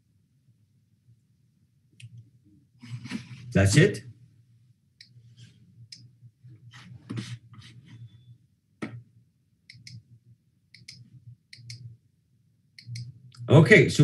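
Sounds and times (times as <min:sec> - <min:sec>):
faint low hum: 0:00.0 - 0:14.0
computer mouse clicks: 0:09.7 - 0:10.0, 0:10.7 - 0:11.9, 0:12.8 - 0:13.5.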